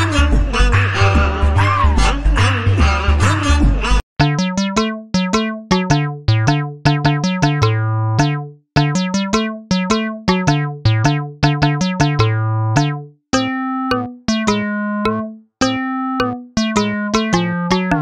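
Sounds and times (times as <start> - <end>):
bouncy keyboard melody: 4.2 - 18.0.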